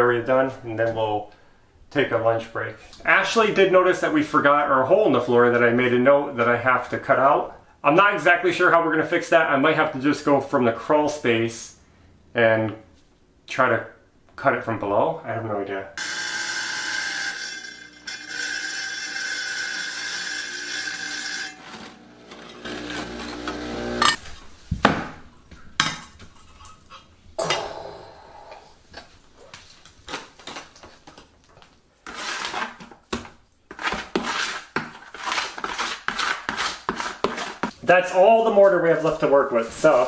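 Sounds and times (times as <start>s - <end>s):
tile saw cutting: 16.0s - 24.2s, 32.1s - 32.9s, 33.7s - 37.7s
mortar scooped from plastic bucket: 32.0s - 37.8s.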